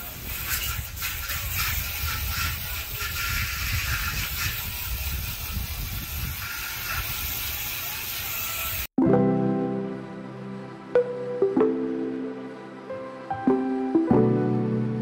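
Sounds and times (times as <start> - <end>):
wind buffeting microphone: 0.0 - 8.9
music: 9.0 - 15.0.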